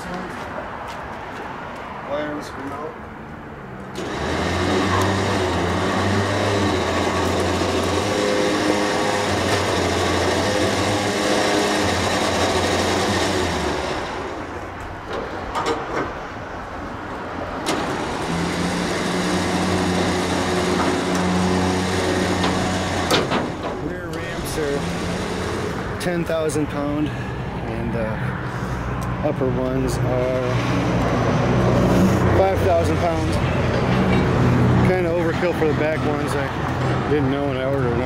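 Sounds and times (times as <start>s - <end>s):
winch motor humming: 4.0s - 14.5s, 17.7s - 26.4s.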